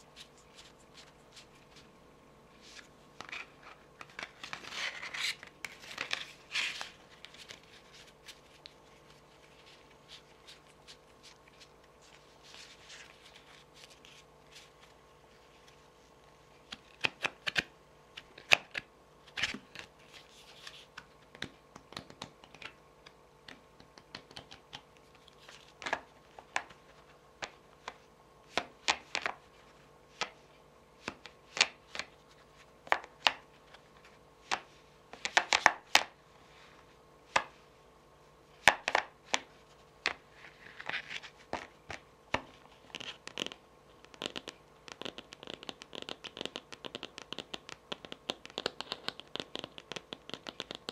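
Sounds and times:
cards being handled: 0.1 - 1.9, 2.6 - 30.4
fingernails tapping on cards: 21.0 - 24.9, 41.5 - 50.9
fingernails scratching cards: 42.9 - 50.9.

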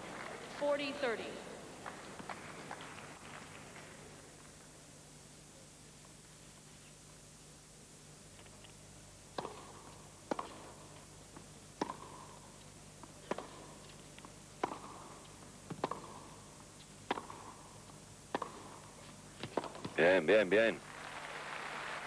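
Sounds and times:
tennis racket hitting ball: 9.3 - 10.9, 11.8 - 20.0.

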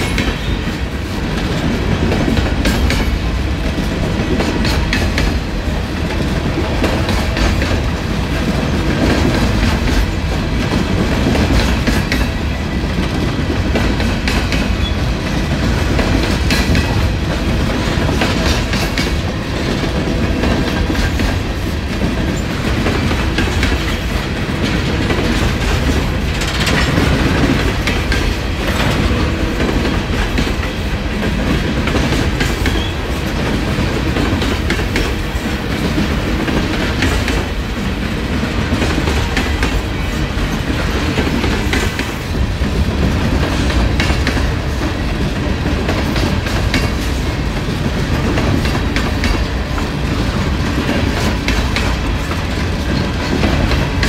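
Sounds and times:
train cars rumbling past: 0.0 - 54.0
wheels clicking over rail joints: 0.0 - 54.0.

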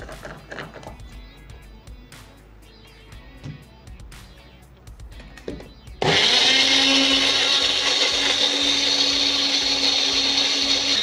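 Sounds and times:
mixer grinder whirring: 6.0 - 11.0.

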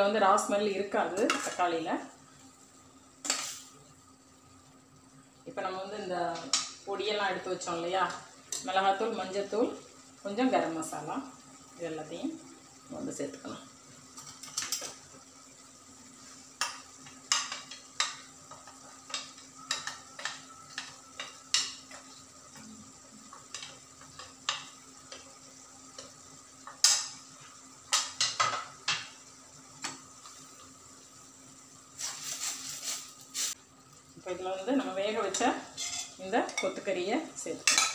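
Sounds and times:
faint steady hum: 0.0 - 32.8
ladle scraping metal pan: 35.8 - 36.2.

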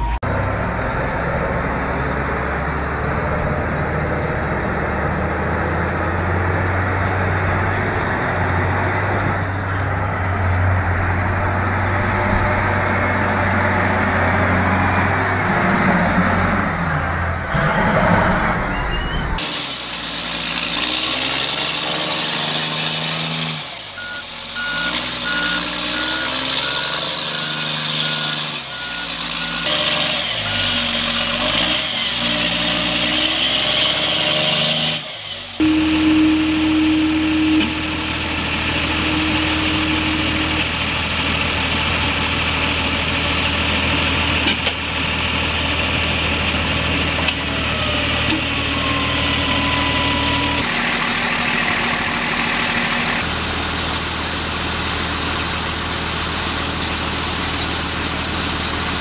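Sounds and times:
reversing beeper: 0.0 - 0.7, 17.6 - 19.4, 23.9 - 32.7, 35.6 - 40.7, 47.6 - 53.2
truck diesel engines labouring: 0.0 - 59.0.

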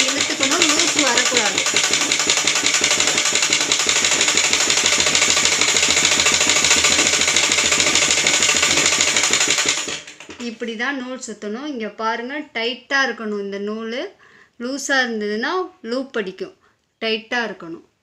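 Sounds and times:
sewing machine clattering: 0.0 - 10.6.

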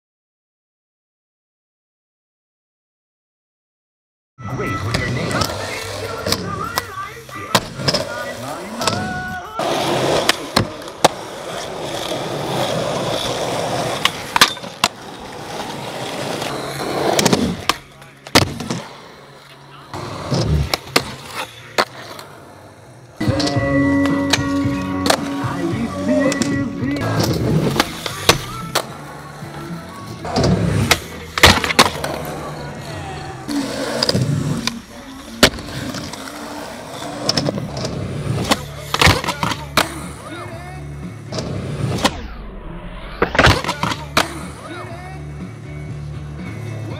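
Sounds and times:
skateboard rolling on asphalt: 5.1 - 17.7, 26.8 - 38.9
skateboard grinding on ledge: 7.5 - 17.8, 20.0 - 40.2
skateboard clacks: 30.2 - 32.5, 43.2 - 44.5.

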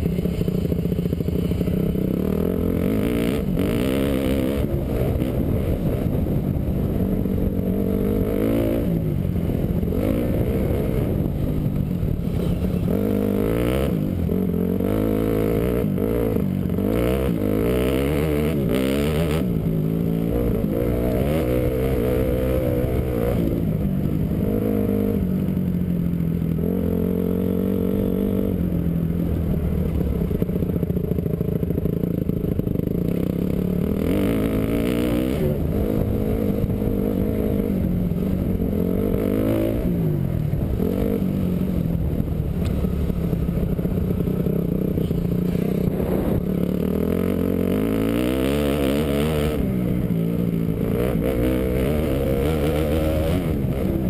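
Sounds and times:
motocross engine revving: 50.4 - 54.0.

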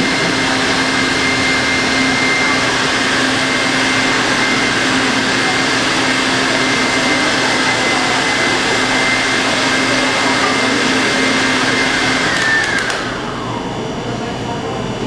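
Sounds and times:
stand mixer motor whine: 0.0 - 15.0.

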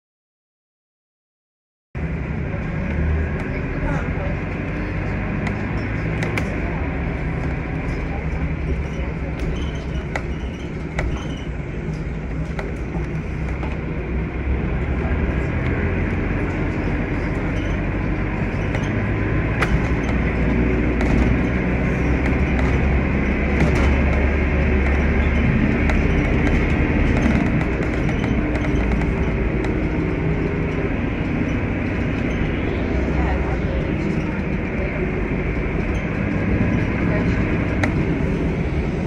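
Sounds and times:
vehicle rumble and road noise: 2.0 - 39.0.

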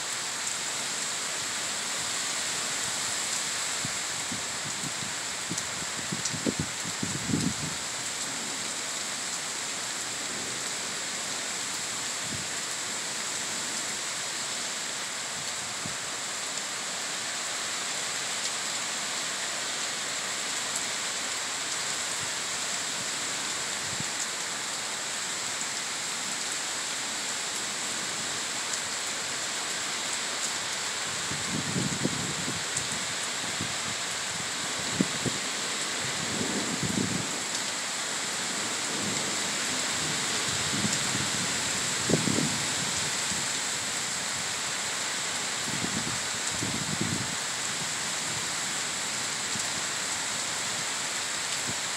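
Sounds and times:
heavy rain pouring: 0.0 - 51.9.

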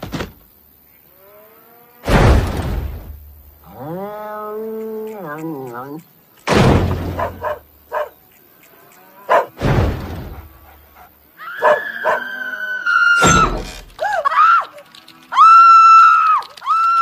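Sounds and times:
heavy thud against wooden wall: 6.5 - 7.4, 9.6 - 10.5.

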